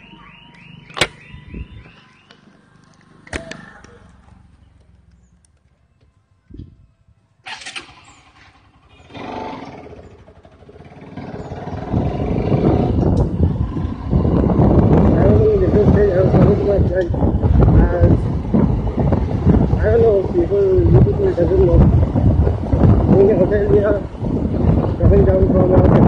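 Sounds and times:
sharp clicks: 0.5s - 1.3s
motorcycle engine starting: 0.6s - 5.9s, 7.4s - 25.8s
wind noise: 0.9s - 2.2s, 6.3s - 8.8s, 10.0s - 26.0s.

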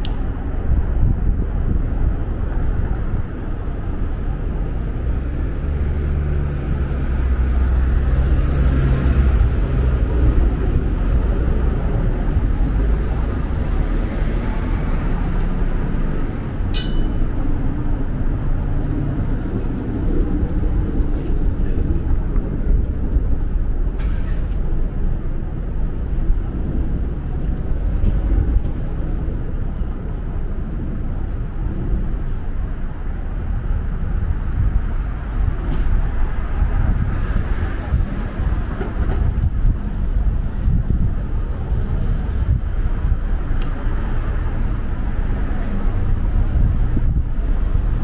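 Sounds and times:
street traffic rumble: 0.0s - 48.0s
sharp squeak: 16.7s - 17.3s.

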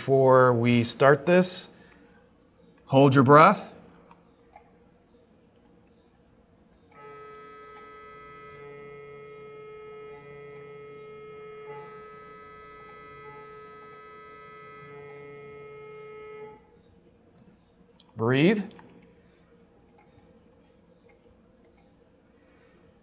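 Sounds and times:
mri scanner multi-tone hum: 4.1s - 17.8s.

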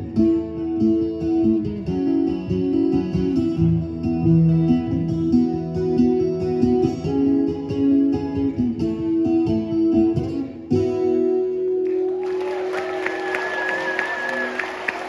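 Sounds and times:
fingerpicked acoustic guitar: 0.0s - 12.2s
audience applause: 11.9s - 15.0s.

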